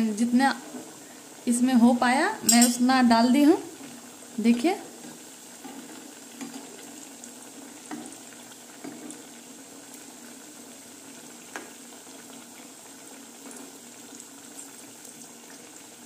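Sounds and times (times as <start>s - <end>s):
bubbling sizzle of deep-frying: 0.0s - 16.0s.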